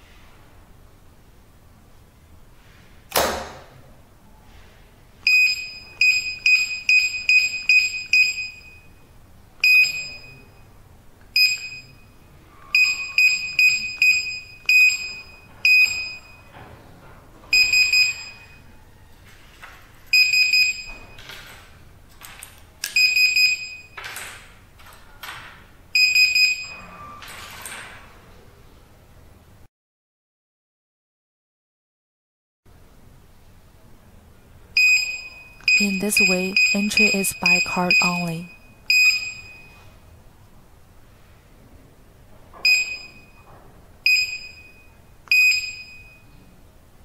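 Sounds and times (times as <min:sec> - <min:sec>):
keypad buzzer beeping: 0:05.3 - 0:09.0, 0:11.4 - 0:12.0, 0:12.7 - 0:16.5, 0:17.6 - 0:18.6, 0:20.2 - 0:21.1, 0:22.9 - 0:24.0, 0:26.0 - 0:26.8, 0:34.8 - 0:39.8, 0:42.6 - 0:43.3.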